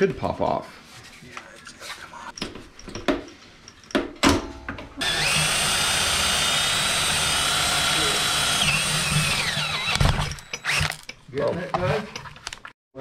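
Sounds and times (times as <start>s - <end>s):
cordless drill whining: 5.0s - 11.2s.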